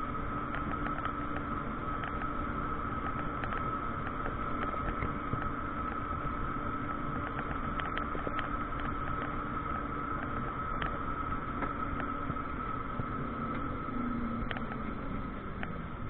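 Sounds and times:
drivetrain hum: 0.0s - 16.0s
high electric whine: 0.0s - 16.0s
road and wind noise: 0.0s - 16.0s
faint ticks: 14.3s - 15.8s.

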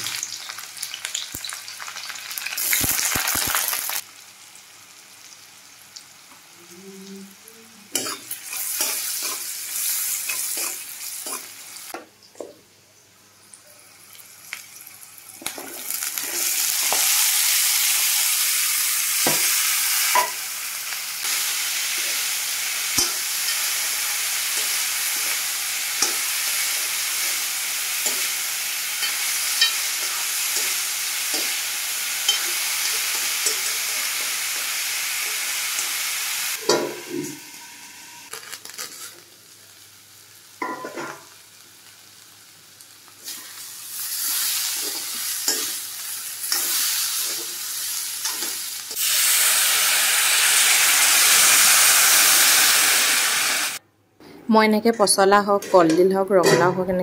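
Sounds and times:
vegetables sizzling in hot oil: 0.0s - 12.0s, 13.4s - 53.8s
steel spoon scraping a pan: 7.9s - 11.6s, 32.2s - 34.3s.

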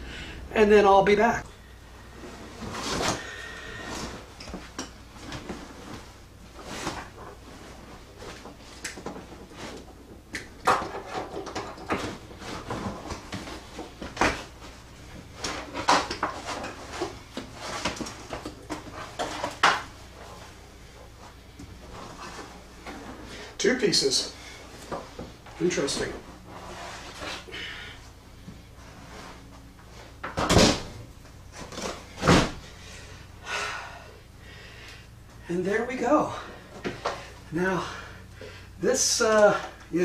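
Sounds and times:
carpet rustling and scraping: 1.7s - 10.3s, 10.9s - 33.3s.

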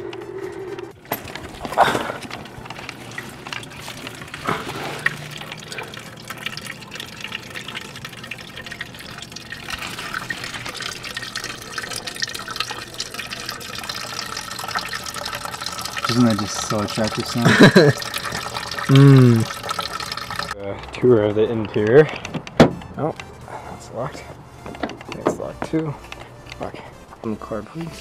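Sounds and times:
liquid pouring into a bucket: 1.0s - 20.6s.

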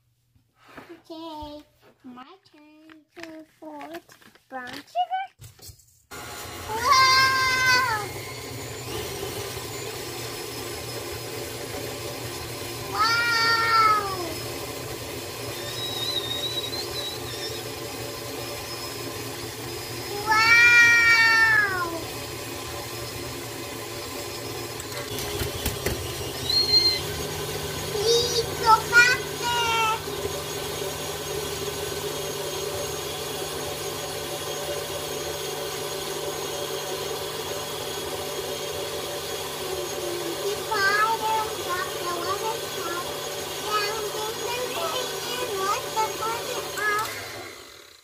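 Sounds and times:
stand mixer running: 6.1s - 48.0s.

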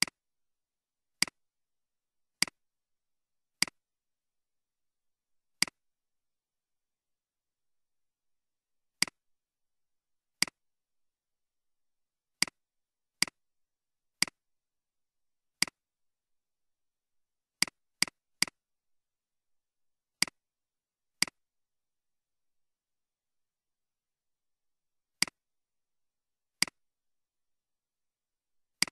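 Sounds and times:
computer mouse clicks: 0.0s - 0.2s, 1.2s - 1.4s, 2.4s - 2.6s, 3.6s - 3.8s, 5.6s - 5.8s, 9.0s - 9.2s, 10.4s - 10.6s, 12.4s - 12.6s, 14.2s - 14.4s, 15.6s - 15.8s, 17.6s - 18.6s, 20.2s - 20.4s, 21.2s - 21.4s, 25.2s - 25.4s, 26.6s - 26.8s.

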